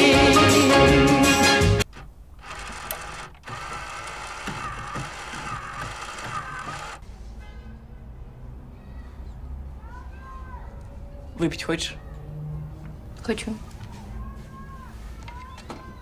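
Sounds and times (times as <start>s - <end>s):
pop song: 0.0s - 1.8s
mechanical clicking and whirring: 1.8s - 7.0s.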